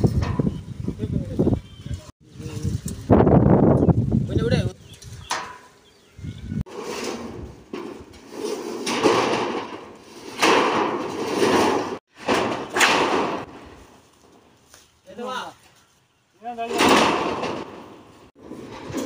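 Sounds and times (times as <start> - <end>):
metal roofing sheet rattling sliding: 6.6 - 14.1, 16.6 - 19.0.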